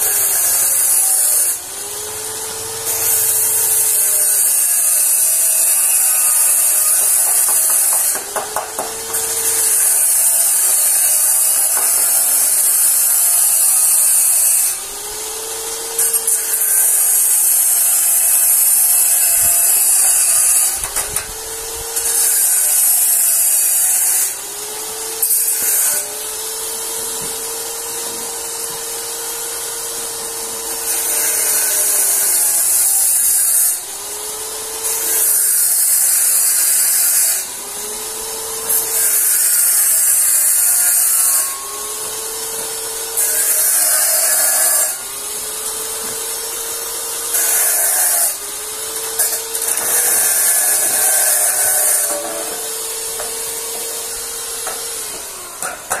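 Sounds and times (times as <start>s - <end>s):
arc welding sizzle and crackle: 0.0s - 56.0s.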